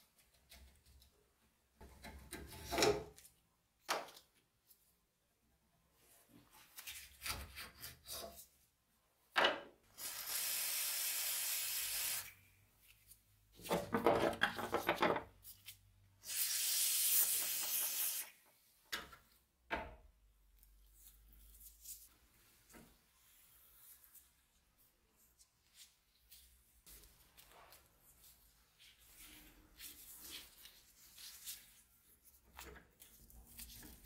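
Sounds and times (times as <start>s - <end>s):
aerosol spray can hissing: 16.3s - 18.3s.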